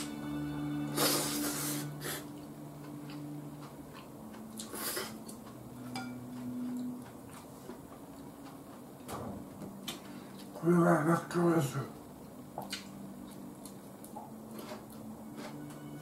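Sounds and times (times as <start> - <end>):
faint chewing and mouth clicks: 2.4 - 9.1, 9.8 - 10.7, 12.2 - 15.6.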